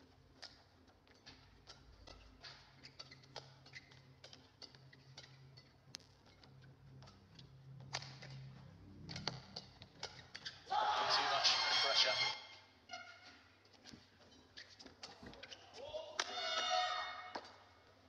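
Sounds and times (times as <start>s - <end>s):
racket hitting shuttlecock: 6.0s - 10.6s, 14.8s - 17.6s.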